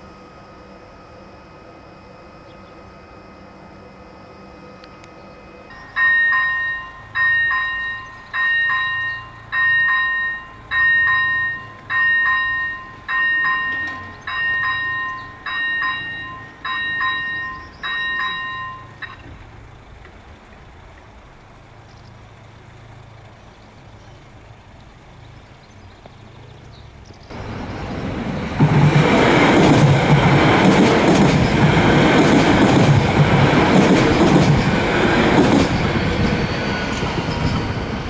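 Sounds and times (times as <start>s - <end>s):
level-crossing warning bell: 0.0s - 19.4s.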